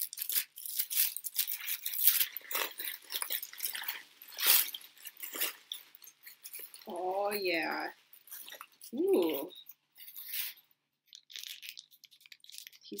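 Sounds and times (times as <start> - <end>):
wrapping crinkling and rustling: 0.0 - 13.0.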